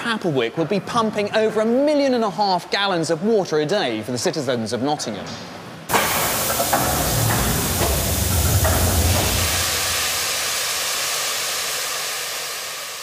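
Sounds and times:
steam hissing: 0:05.9 - 0:13.0
low rumble: 0:06.8 - 0:10.8.

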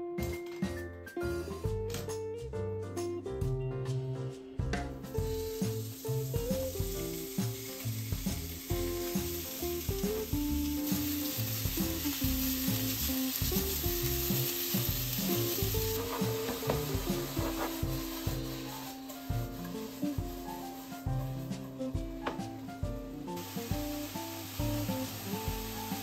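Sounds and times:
soft background music: 0:00.0 - 0:26.0
meat sizzling in a frying pan: 0:05.1 - 0:26.0
chopsticks stirring: 0:11.0 - 0:21.8.

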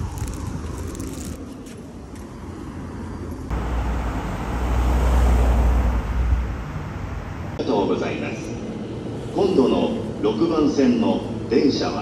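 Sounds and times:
vehicle passing with tyre noise: 0:00.0 - 0:07.6.

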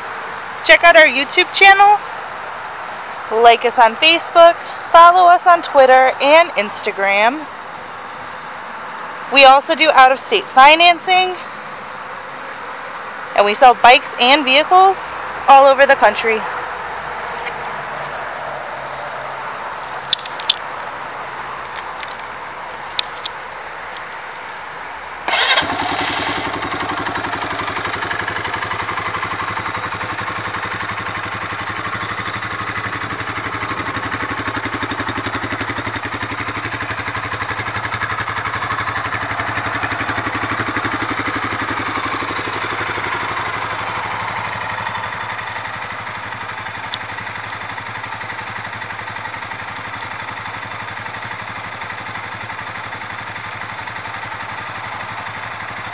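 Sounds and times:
small engine starting and idling: 0:25.2 - 0:55.9.

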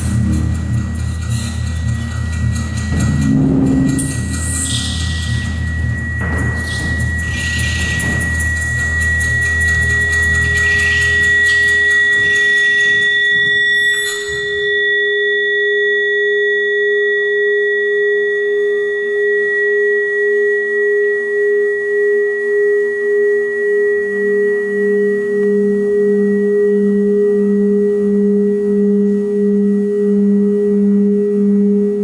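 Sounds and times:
low noisy texture: 0:00.0 - 0:15.2
sustained pure tones: 0:00.0 - 0:32.0.

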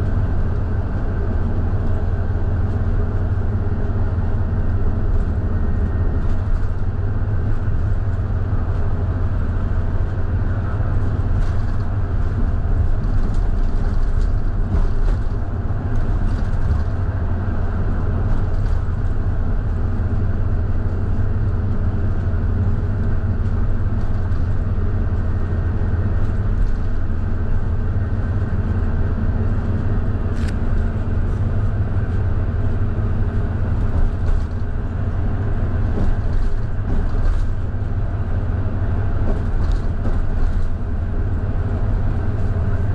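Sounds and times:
bus engine drone: 0:00.0 - 0:42.9
road noise: 0:00.0 - 0:42.9.

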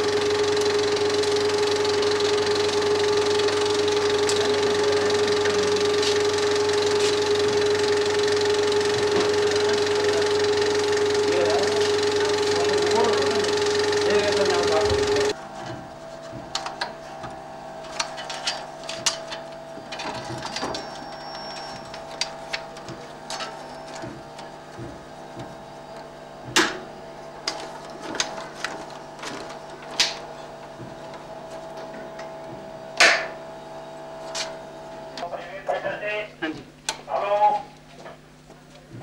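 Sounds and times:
film projector running: 0:00.0 - 0:39.0.

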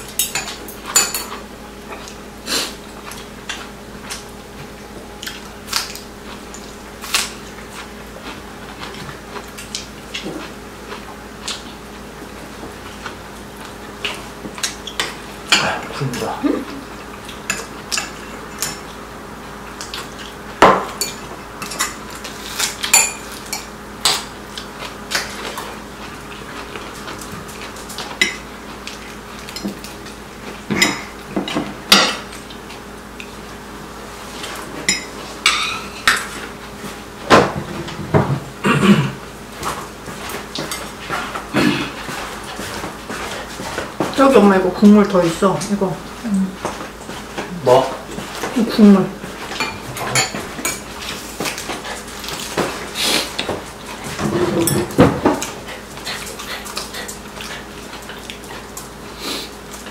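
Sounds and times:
cutlery clinking on ceramic bowls: 0:00.1 - 0:02.1, 0:22.6 - 0:24.2, 0:34.8 - 0:36.3, 0:49.5 - 0:50.9, 0:54.4 - 0:55.1.

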